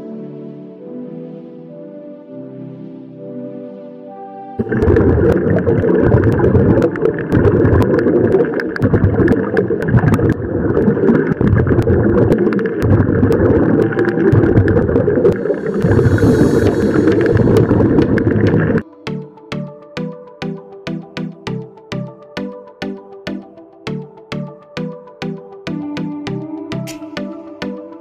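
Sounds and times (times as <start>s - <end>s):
diver breathing through regulator: 15.4s - 18.8s.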